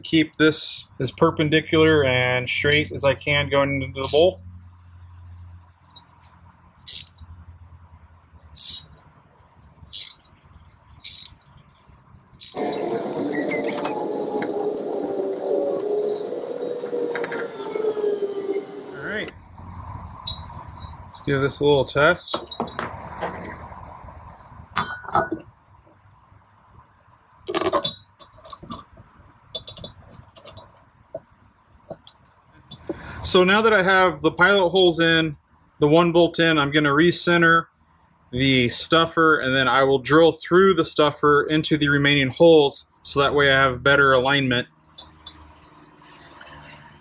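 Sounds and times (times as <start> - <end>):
metal parts clinking: 6.9 - 7.2, 8.6 - 9.0, 9.9 - 10.3, 11.0 - 11.4, 12.4 - 12.6, 27.5 - 30.8
ratcheting tap handle rasp: 6.9 - 7.2, 8.6 - 9.0, 9.9 - 10.3, 11.0 - 11.4, 12.4 - 12.6
metallic tool clatter: 27.5 - 30.8.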